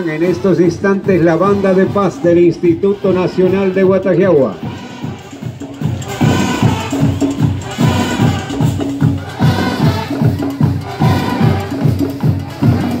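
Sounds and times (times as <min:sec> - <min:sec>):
drums beating march rhythm: 0:00.0 - 0:13.0
marching band playing: 0:00.0 - 0:13.0.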